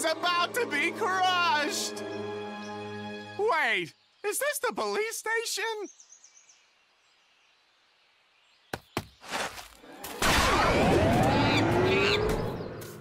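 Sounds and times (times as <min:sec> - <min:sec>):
cartoon crashing noise: 0:10.1 - 0:11.6.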